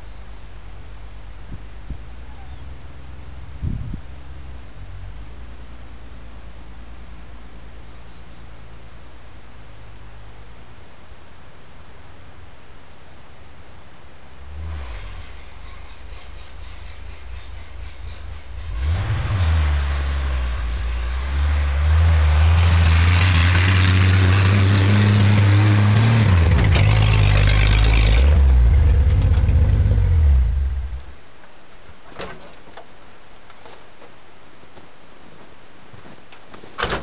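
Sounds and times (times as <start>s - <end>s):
truck engine revving and driving: 14.4s - 31.0s.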